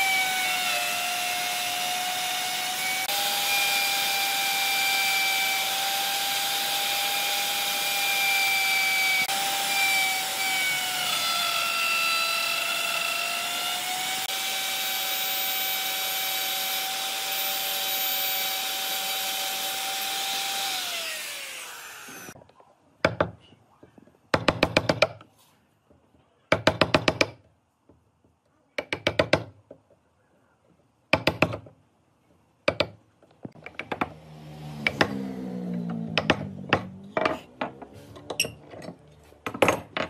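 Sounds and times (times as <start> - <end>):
electric router whining: 0.0 - 22.4, 33.6 - 38.3
mallet striking chisel into wood: 26.5 - 27.4, 28.8 - 29.6, 31.1 - 31.7, 32.7 - 34.2, 36.2 - 37.4.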